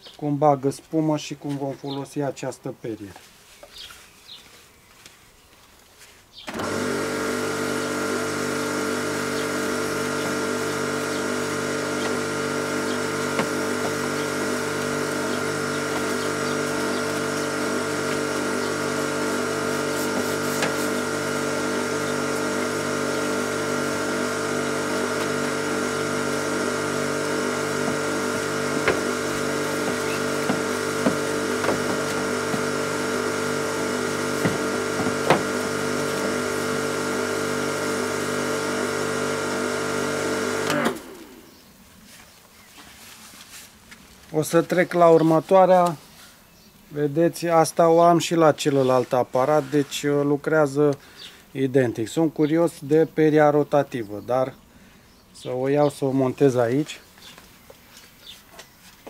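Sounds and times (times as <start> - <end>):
pressure washer motor humming: 6.5 - 41.6.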